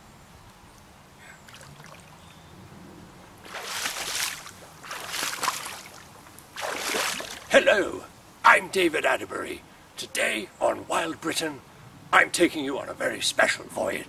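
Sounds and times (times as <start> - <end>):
faint river background: 0.0 - 14.0
legs splashing through river water: 1.4 - 2.3, 3.3 - 7.5.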